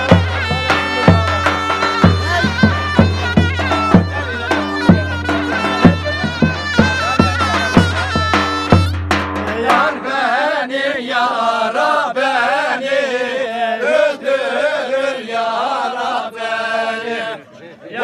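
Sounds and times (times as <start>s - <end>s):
men singing in unison: 0.0s - 8.3s, 9.4s - 18.0s
droning wind instrument: 0.0s - 9.1s
drum beats: 0.0s - 10.6s.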